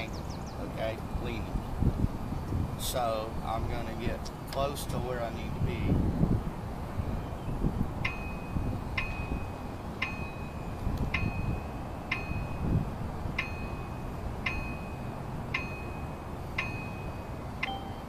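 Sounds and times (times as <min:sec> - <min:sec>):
short electronic dings: 0:08.0 - 0:12.8, 0:13.4 - 0:18.0.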